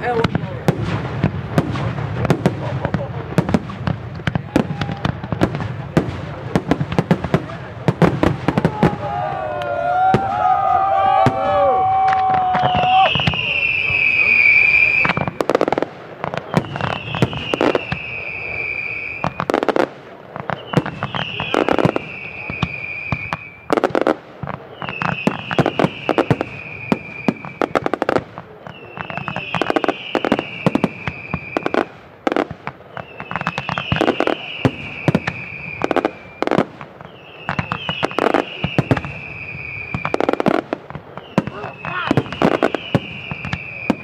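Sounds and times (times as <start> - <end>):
fireworks bangs and crackle: 0.0 - 44.0
high falling whistle tone: 9.6 - 15.3.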